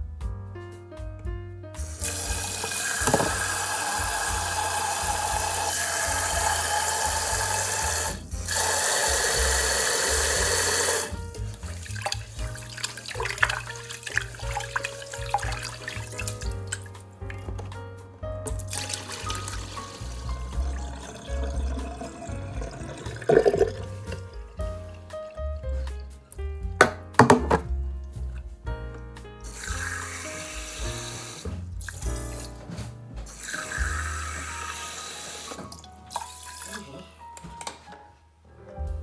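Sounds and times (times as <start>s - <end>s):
background music with low beat: 0.0s - 34.8s, 37.2s - 39.0s
tap water running into pot: 1.8s - 17.6s, 18.5s - 25.1s, 29.4s - 32.4s, 33.3s - 36.9s
water splashing into sink: 1.8s - 17.7s, 18.5s - 25.9s, 29.5s - 37.0s.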